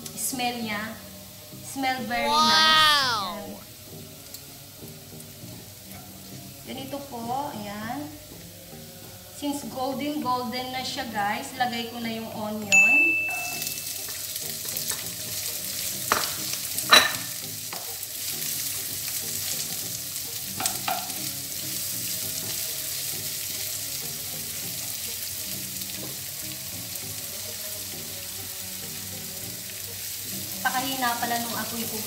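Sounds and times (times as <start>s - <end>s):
onion sizzling in frying pan: 13.5s - 32.0s.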